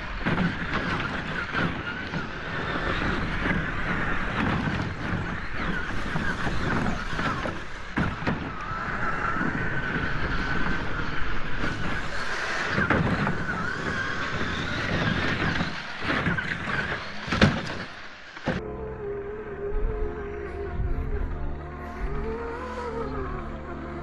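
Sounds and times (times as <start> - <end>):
electric motor and gears whining: 0.0 - 24.0
wind on microphone: 0.0 - 24.0.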